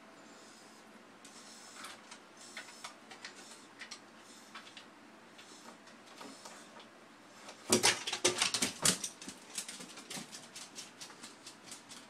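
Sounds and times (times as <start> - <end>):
puppy claws clattering down stairs: 7.6 - 12.0.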